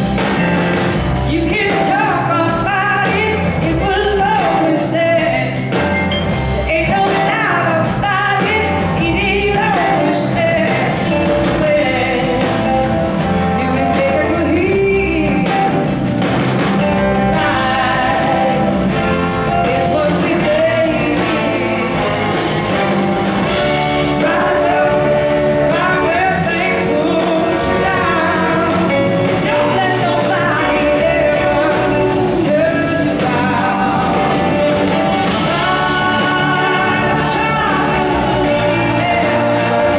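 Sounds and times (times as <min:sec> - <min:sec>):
person singing: 0:00.0 - 0:16.1, 0:17.0 - 0:39.9
drums: 0:00.0 - 0:39.9
electric guitars: 0:00.0 - 0:39.9
horn section: 0:15.4 - 0:39.9.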